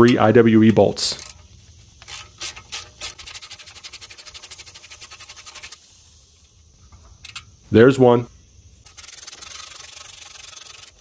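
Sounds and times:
hand ratchet clicking: 1.1 - 5.8, 8.8 - 11.0.

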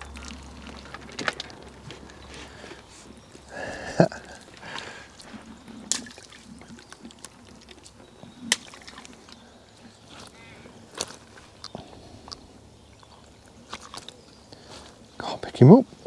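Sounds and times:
fish slapping in landing net: 5.8 - 9.4.

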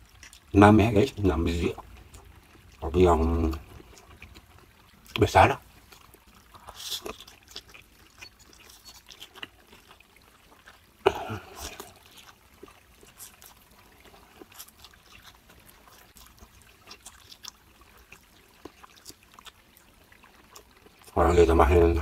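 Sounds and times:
wet chewing mouth sounds: 0.0 - 22.0.

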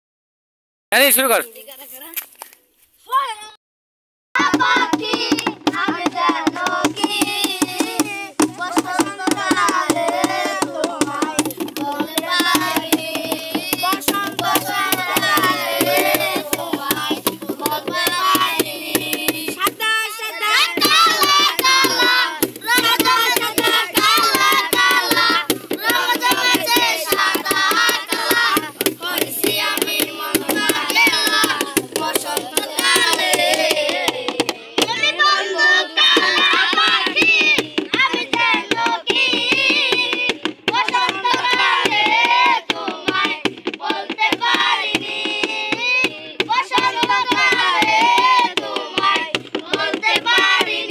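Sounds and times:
boys singing in unison: 4.4 - 50.9
fast steady tapping: 5.2 - 35.0.

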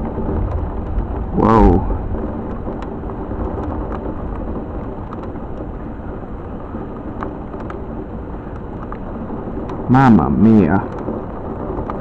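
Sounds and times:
low rumble of thunder: 0.0 - 12.0
rain hissing: 0.0 - 12.0
faint ticks: 6.8 - 7.8, 8.4 - 9.8.

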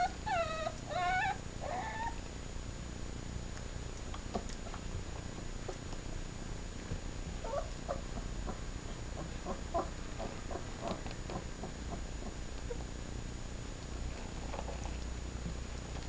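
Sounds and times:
puppies squeaking and whimpering: 0.0 - 2.2.

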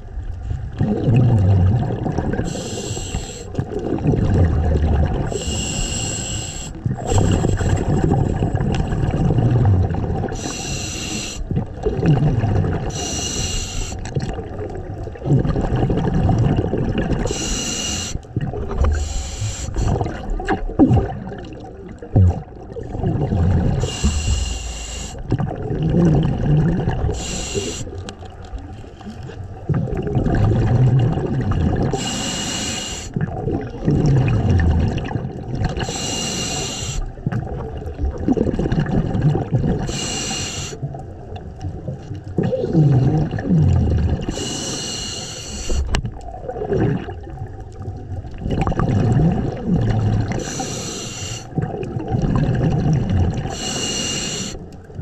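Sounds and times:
exhaled bubbles rushing: 0.0 - 6.0, 6.8 - 32.4, 33.1 - 44.7, 45.5 - 55.0
regulator inhalation hiss: 2.5 - 3.6, 5.3 - 7.8, 10.4 - 11.5, 12.9 - 14.0, 17.3 - 18.2, 18.9 - 19.9, 23.8 - 25.2, 27.1 - 28.0, 32.0 - 33.2, 35.8 - 37.1, 39.9 - 40.8, 44.3 - 45.9, 50.4 - 51.5, 53.5 - 54.7.

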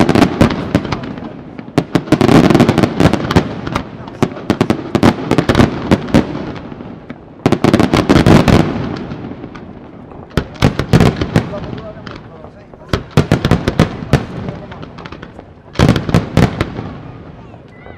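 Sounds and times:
fireworks cracks and bangs: 0.0 - 17.9
fireworks rumble: 0.0 - 17.9.

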